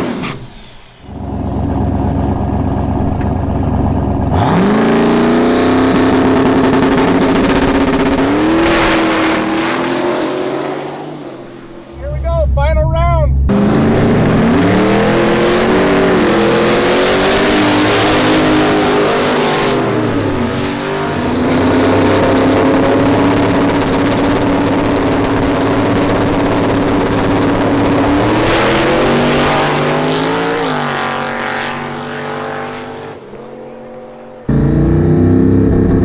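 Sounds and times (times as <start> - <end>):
car engine revving high: 1.1 - 36.0.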